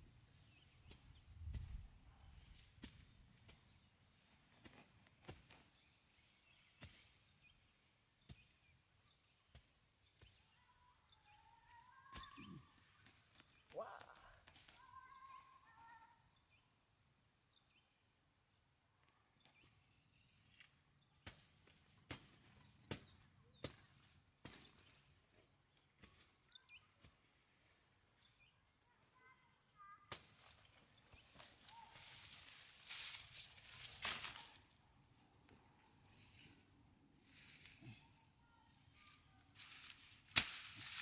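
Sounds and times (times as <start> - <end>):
faint high bird-like chirps: 5.4 - 14.0, 24.4 - 27.1, 31.0 - 34.8.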